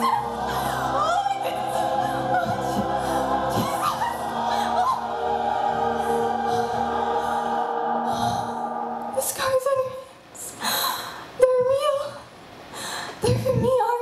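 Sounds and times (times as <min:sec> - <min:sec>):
choir singing sustained chords: 0:00.0 - 0:10.3.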